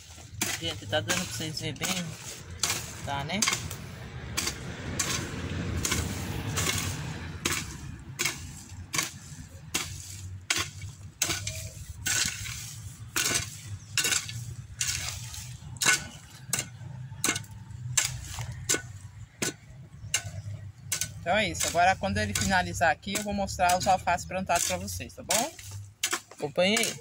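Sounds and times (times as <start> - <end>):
blade scraping through earth: 0.0 - 27.0
hoe striking wet soil: 0.0 - 27.0.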